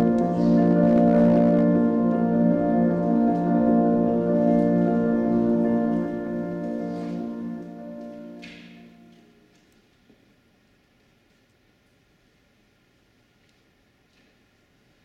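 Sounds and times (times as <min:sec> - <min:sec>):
sustained music chord: 0:00.0 - 0:09.4.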